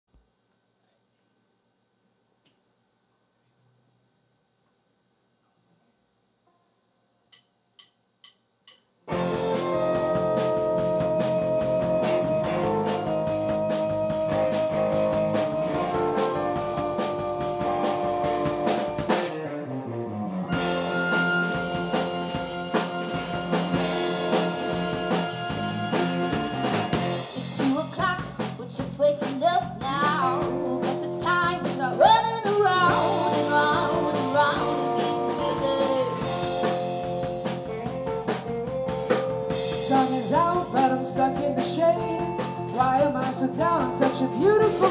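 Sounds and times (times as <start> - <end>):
bending lead melody: 9.1 - 27.9, 30.0 - 44.9
pop-folk band playing: 9.1 - 44.9.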